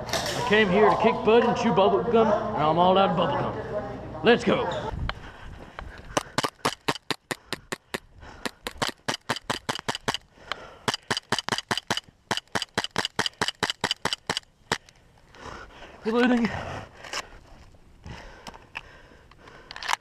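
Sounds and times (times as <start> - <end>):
airsoft pistol firing: 6.2 - 10.2, 10.9 - 14.4.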